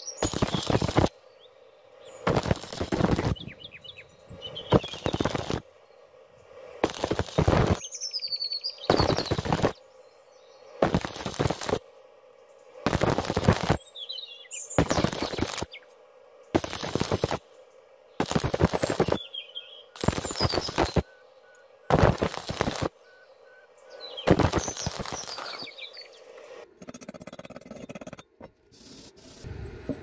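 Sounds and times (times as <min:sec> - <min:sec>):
welding arc crackling: 0:00.0 - 0:01.1, 0:02.2 - 0:03.5, 0:04.6 - 0:05.7, 0:06.8 - 0:07.8, 0:08.9 - 0:09.8, 0:10.8 - 0:11.8, 0:12.8 - 0:13.8, 0:14.7 - 0:15.8, 0:16.5 - 0:17.5, 0:18.2 - 0:19.3, 0:20.0 - 0:21.1, 0:21.9 - 0:23.0, 0:24.2 - 0:26.6
birds chirping: 0:00.0 - 0:26.6, 0:29.4 - 0:30.0.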